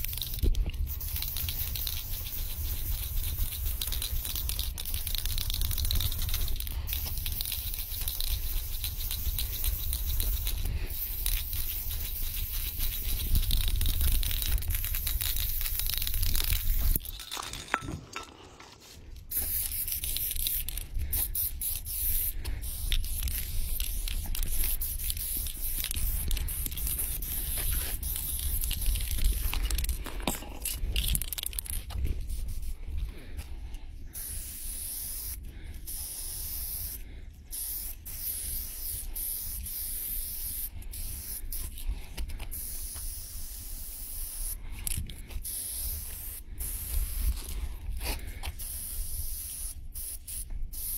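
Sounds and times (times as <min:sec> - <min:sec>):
aerosol spray can hissing: 0:00.0 - 0:17.0, 0:19.3 - 0:30.0, 0:31.0 - 0:32.8, 0:34.1 - 0:41.8, 0:42.5 - 0:50.9.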